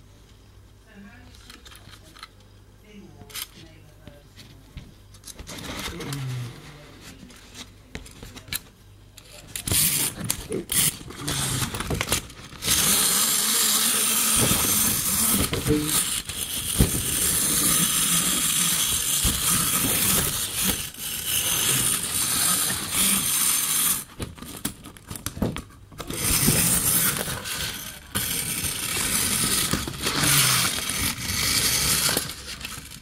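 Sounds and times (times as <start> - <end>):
clockwork toy motor whirring: 9.6 - 24.8, 26.0 - 33.0.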